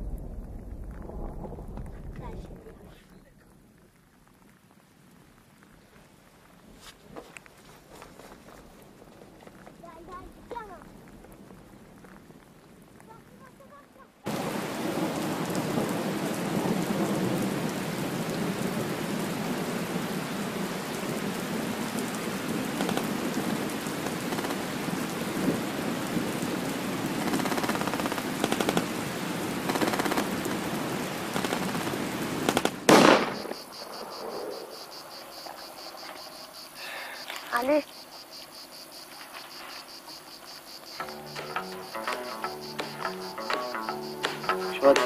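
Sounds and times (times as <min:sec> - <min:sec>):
heavy rain: 0:00.0 - 0:45.0
crickets chirping: 0:08.5 - 0:45.0
loud crack: 0:31.3 - 0:34.5.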